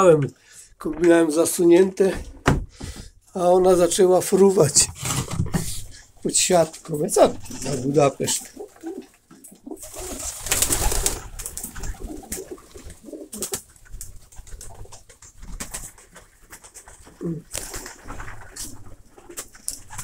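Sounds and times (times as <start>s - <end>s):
knocks and rustles: 2.0s - 3.8s, 4.7s - 6.0s
pigeons cooing: 7.4s - 13.6s, 17.0s - 20.0s.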